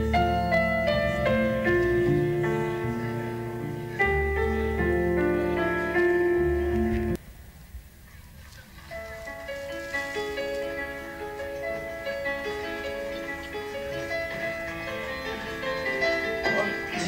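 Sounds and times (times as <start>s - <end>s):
slow piano music: 0.0s - 7.2s, 8.8s - 17.0s.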